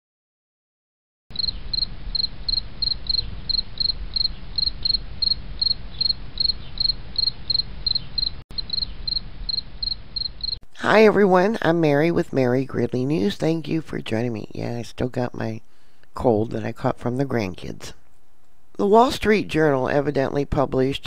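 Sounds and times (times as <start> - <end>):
cricket chirping: 1.3 - 10.6.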